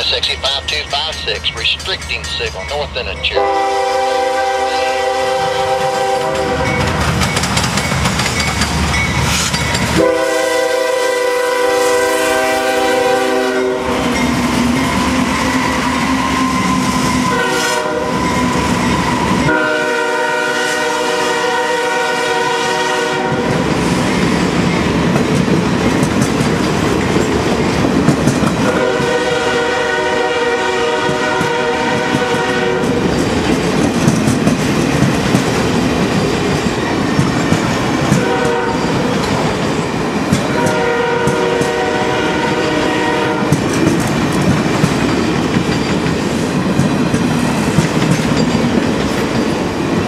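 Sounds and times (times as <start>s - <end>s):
train rumbling over rail joints: 0.0s - 50.0s
locomotive air horn blasts: 3.3s - 6.8s, 10.0s - 14.0s, 17.3s - 18.2s, 19.5s - 23.5s, 28.6s - 33.0s, 38.2s - 38.8s, 40.5s - 43.5s.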